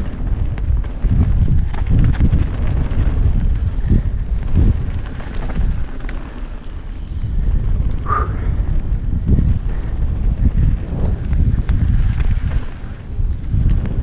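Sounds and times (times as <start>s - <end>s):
bike rattling and knocking: 0.0s - 14.0s
wind buffeting microphone: 0.0s - 14.0s.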